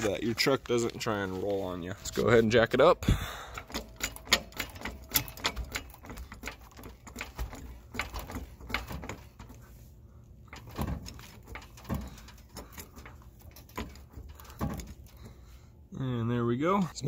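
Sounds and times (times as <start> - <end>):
heavy metal clunks: 2.8 - 9.7, 10.4 - 15.5
jack pumping clicks: 3.0 - 9.8, 10.4 - 15.6.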